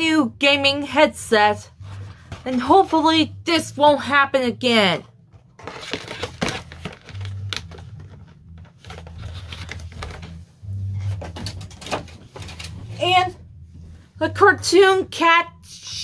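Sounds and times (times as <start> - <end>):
steady low hum: 6.8 - 15.6.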